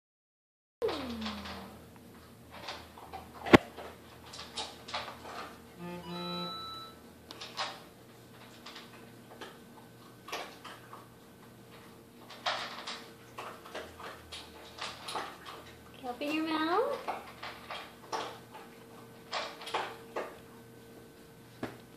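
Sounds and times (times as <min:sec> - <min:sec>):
faint steady hum: 0:00.8 - 0:21.9
short flat buzzing tone: 0:05.8 - 0:07.0.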